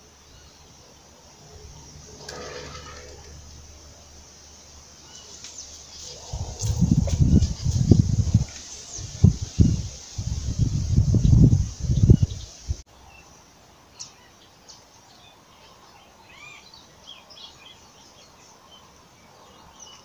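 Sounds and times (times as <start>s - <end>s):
small birds chirping: 0.0s - 20.0s
wind rumbling on microphone: 6.0s - 12.8s.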